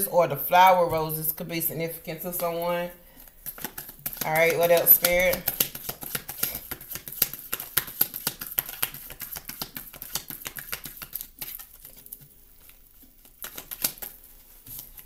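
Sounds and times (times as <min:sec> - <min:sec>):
cards being shuffled: 0:03.2 - 0:15.0.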